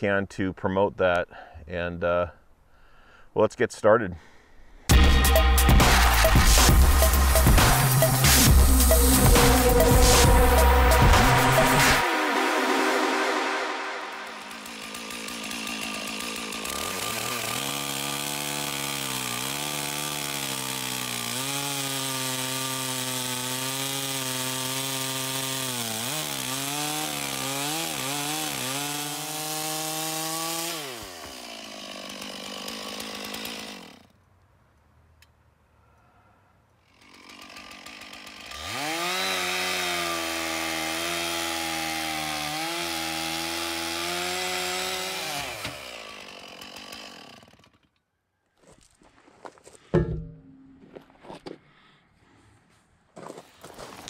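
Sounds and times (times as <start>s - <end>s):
chainsaw cutting log: 4.9s - 34.2s, 36.8s - 48.0s.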